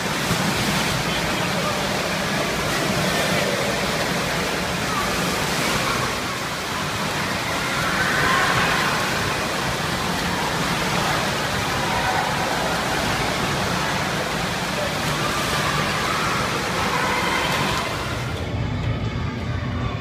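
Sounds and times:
churning splashing water: 0:00.0 - 0:18.5
children's voices: 0:03.1 - 0:18.4.

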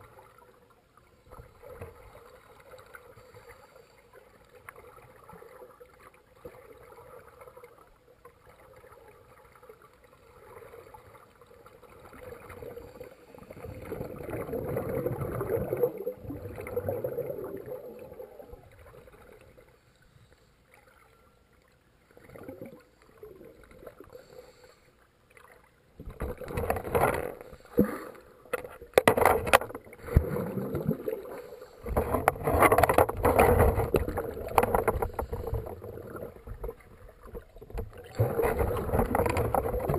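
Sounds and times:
underwater water rushing and bubbling: 0:00.0 - 0:39.9
water sloshing: 0:25.3 - 0:39.9.

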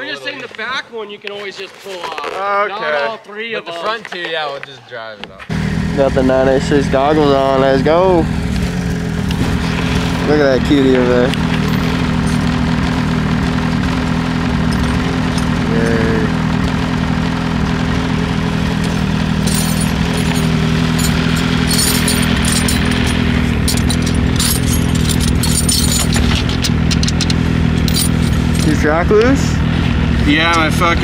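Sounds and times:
snowmobile engine idling: 0:05.5 - 0:31.0
metallic clinks of hand tools: 0:14.7 - 0:15.7, 0:18.8 - 0:28.8.

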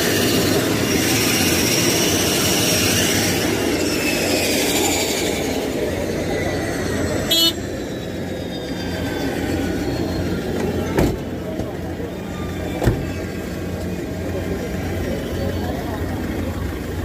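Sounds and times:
turboprop engines winding down: 0:00.0 - 0:17.0
car horn beep: 0:07.3 - 0:07.6.

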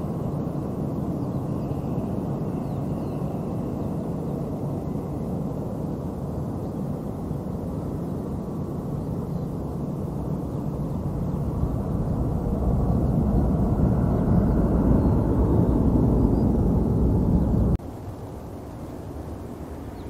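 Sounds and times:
jet engines rumbling: 0:00.0 - 0:20.0.

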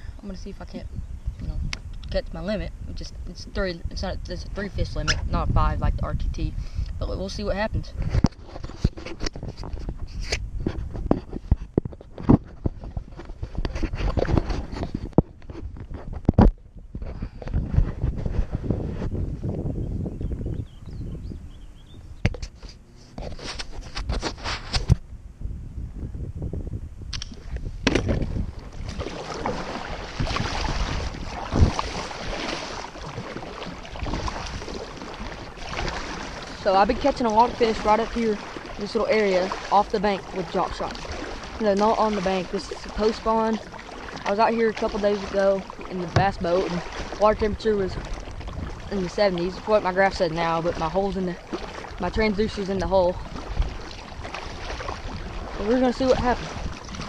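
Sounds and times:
wind rumbling on microphone: 0:00.0 - 0:57.0
paddle splashing in water: 0:07.3 - 0:19.2, 0:22.2 - 0:25.0, 0:27.3 - 0:57.0.

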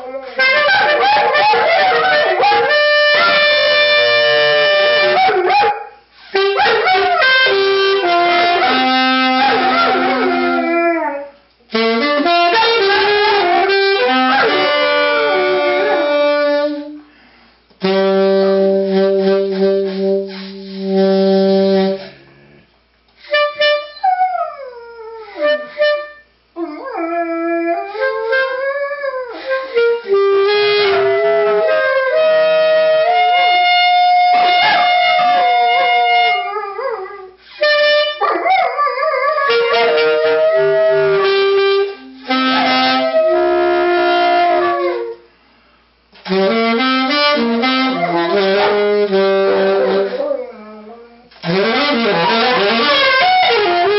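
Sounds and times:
saxophone long held notes: 0:00.0 - 0:05.6, 0:06.2 - 0:11.0, 0:11.7 - 0:17.2, 0:17.8 - 0:24.2, 0:25.3 - 0:26.3, 0:27.9 - 0:38.3, 0:39.0 - 0:45.3, 0:46.2 - 0:53.9
dog howling: 0:09.4 - 0:11.4, 0:12.9 - 0:16.4, 0:33.0 - 0:37.4, 0:44.4 - 0:45.2, 0:49.5 - 0:51.3.

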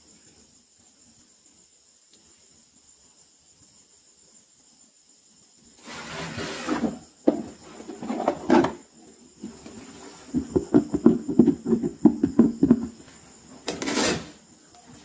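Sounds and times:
toy box scraping on mat: 0:05.8 - 0:08.8, 0:13.6 - 0:14.4.

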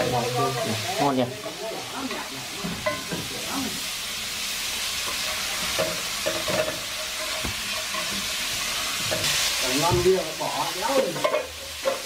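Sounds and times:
snails sizzling in hot oil: 0:00.0 - 0:12.0
utensil scraping pan: 0:05.0 - 0:10.3.

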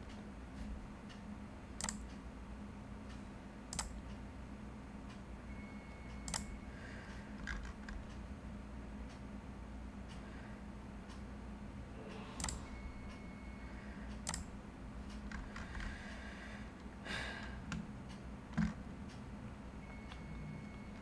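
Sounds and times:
low room hum: 0:00.0 - 0:21.0
mouse and keyboard clicks: 0:01.8 - 0:02.1, 0:03.7 - 0:04.0, 0:12.4 - 0:12.6.

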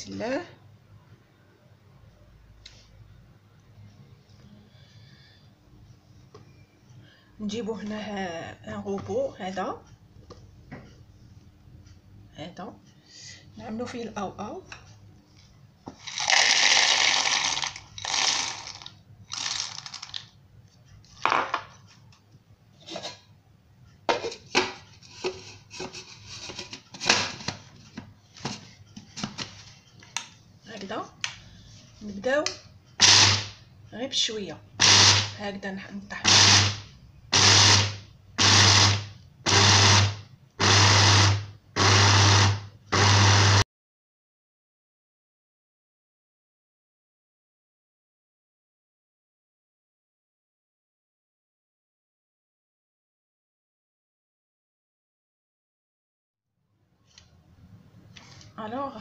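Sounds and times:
peanuts rattling into plastic bowl: 0:16.0 - 0:20.3.

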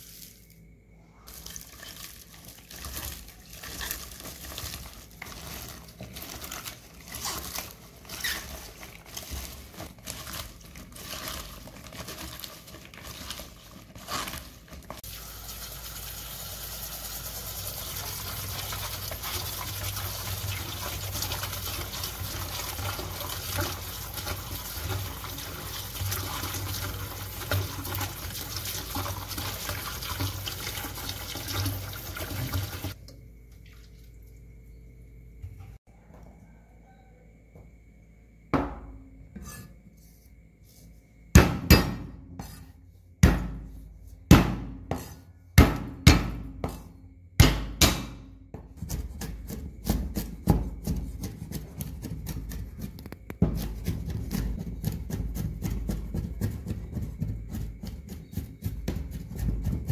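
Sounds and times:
hands rubbing stems in plastic bowl: 0:01.3 - 0:15.0.

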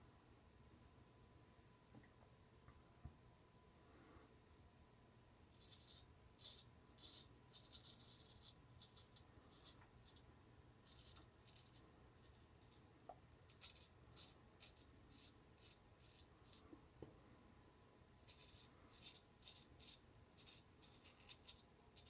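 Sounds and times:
razor scraping stubble: 0:05.6 - 0:10.2, 0:10.8 - 0:12.8, 0:13.5 - 0:16.6, 0:18.2 - 0:22.0.

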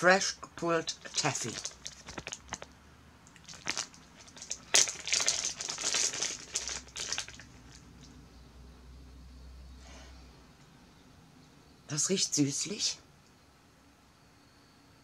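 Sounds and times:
plastic bag crinkling: 0:00.9 - 0:02.7, 0:03.4 - 0:07.8.

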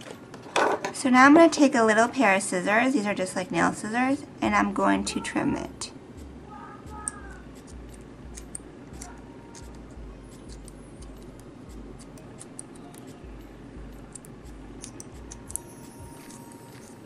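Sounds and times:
low background hum: 0:00.0 - 0:17.0
scissors snipping: 0:06.9 - 0:13.3, 0:13.9 - 0:17.0.

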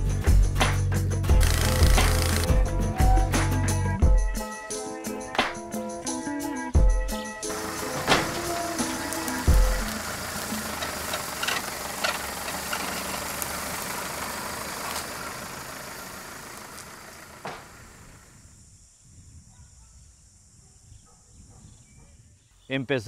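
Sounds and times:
truck engine running: 0:01.2 - 0:03.6, 0:07.5 - 0:18.4
sharp clicks: 0:01.4 - 0:02.5.

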